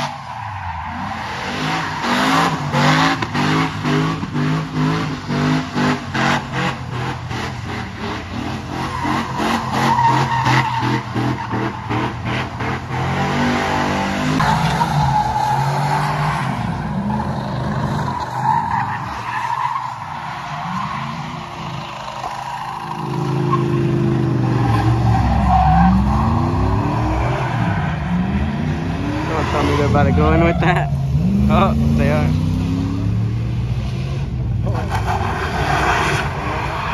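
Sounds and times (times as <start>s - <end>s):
tires squealing: 0.0s - 33.0s, 33.9s - 36.9s
engine revving: 22.9s - 36.8s.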